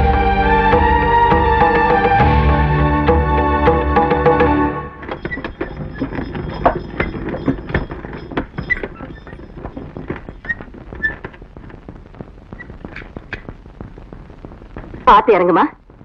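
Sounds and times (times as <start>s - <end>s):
hooves and wooden wheels knocking: 3.1s - 14.0s.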